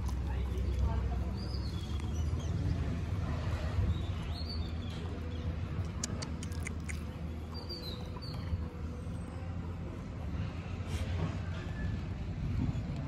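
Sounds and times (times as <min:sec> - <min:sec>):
small birds chirping: 0:00.0 - 0:03.2, 0:03.8 - 0:08.7.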